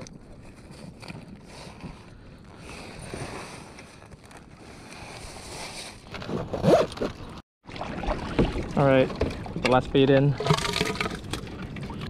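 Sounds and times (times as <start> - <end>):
water washing against hull: 7.6 - 12.0.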